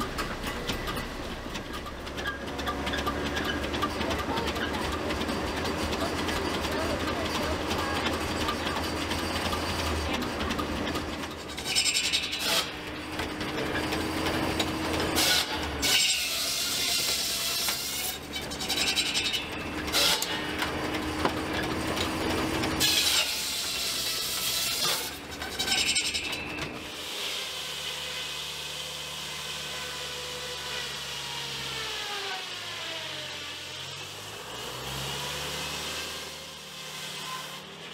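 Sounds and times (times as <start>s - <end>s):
machinery hum: 0.0s - 15.9s
circular saw cutting log: 0.0s - 37.9s.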